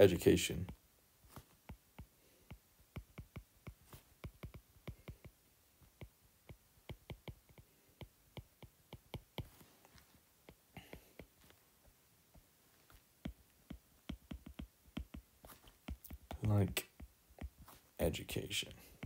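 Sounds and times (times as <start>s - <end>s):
stylus tapping tablet screen: 0.6s - 19.0s.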